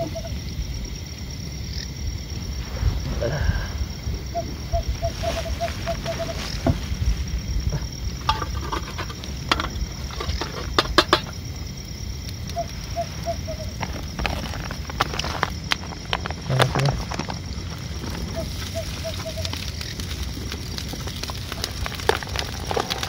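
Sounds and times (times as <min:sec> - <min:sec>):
plastic packet crinkling: 0:13.8 - 0:23.0
small animal chirping: 0:18.3 - 0:19.6.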